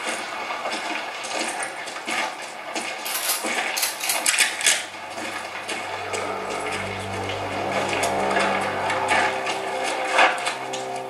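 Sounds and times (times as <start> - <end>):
metallic clinks and rattles: 3.0 - 4.8.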